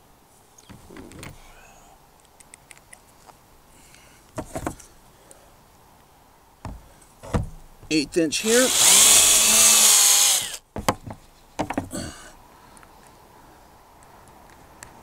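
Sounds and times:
knocks: 4.4s - 4.8s, 6.6s - 8.0s, 10.8s - 12.0s.

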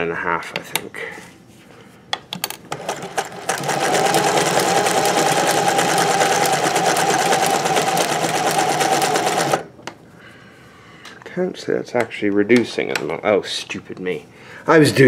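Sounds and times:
sewing machine running: 2.7s - 9.7s.

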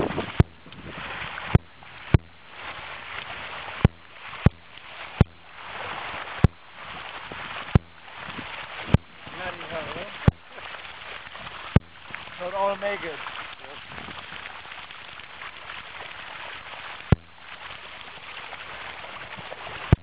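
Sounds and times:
shallow water splashing: 0.0s - 20.0s
sharp knocks: 3.8s - 5.5s, 7.7s - 8.0s.

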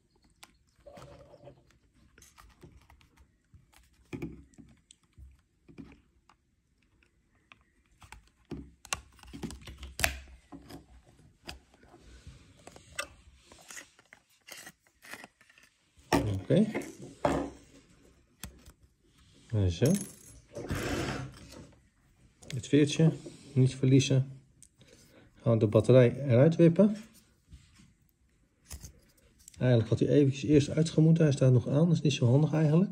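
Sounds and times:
small plastic parts clicking and scraping: 0.1s - 11.9s, 12.6s - 16.9s.

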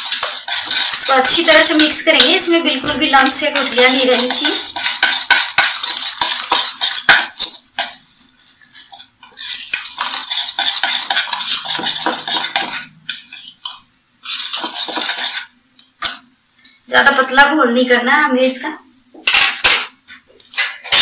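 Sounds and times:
whisk clicking against bowl: 0.0s - 2.6s, 3.2s - 8.0s, 9.2s - 13.8s.

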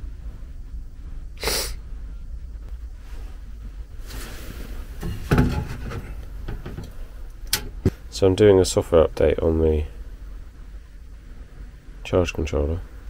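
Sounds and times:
low steady hum: 0.0s - 13.0s
person sniffing: 1.4s - 1.8s
dull handling thump: 5.0s - 6.9s.

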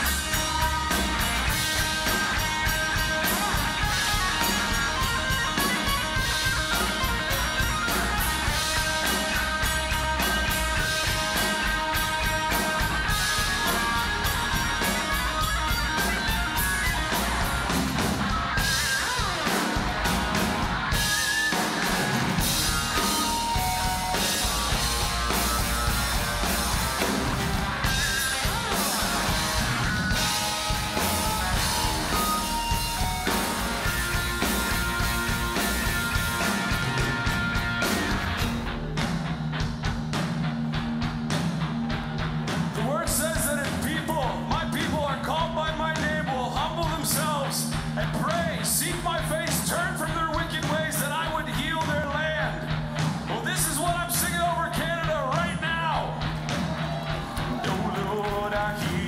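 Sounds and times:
drum kit steady beat: 0.0s - 59.0s
electric guitar: 0.0s - 59.0s.

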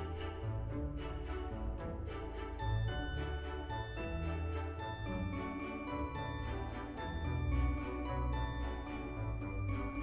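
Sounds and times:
instrumental music with light beat: 0.0s - 10.0s.

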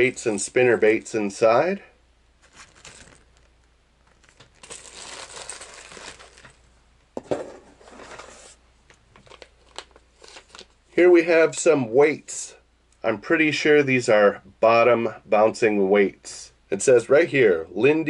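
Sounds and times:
plastic bag crinkling: 2.4s - 6.7s, 9.2s - 10.8s.

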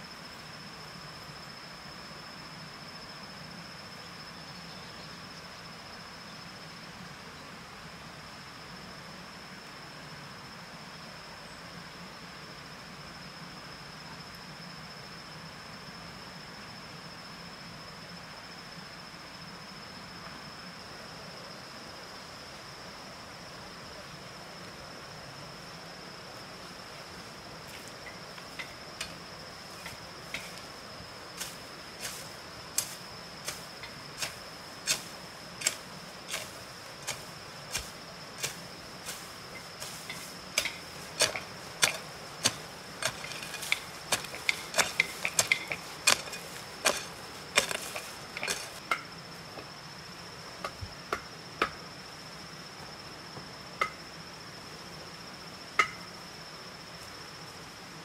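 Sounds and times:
high insect drone: 0.0s - 58.0s
hoe striking hard ground: 31.4s - 49.1s.

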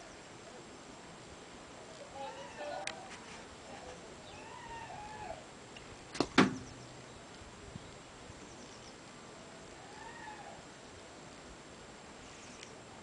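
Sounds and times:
faint drawn-out call: 1.7s - 5.5s, 8.4s - 11.2s, 12.2s - 12.9s.

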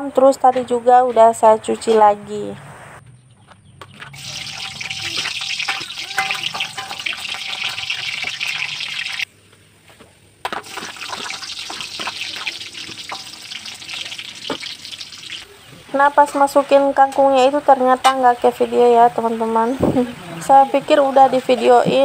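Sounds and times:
garlic sizzling in oil: 4.2s - 9.3s, 10.4s - 18.2s
metal spatula scraping wok: 4.2s - 9.3s, 10.5s - 14.9s.

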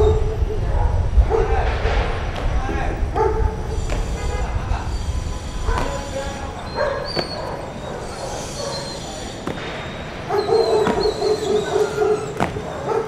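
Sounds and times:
dog barking: 0.0s - 1.7s, 3.1s - 3.8s, 5.7s - 13.0s.

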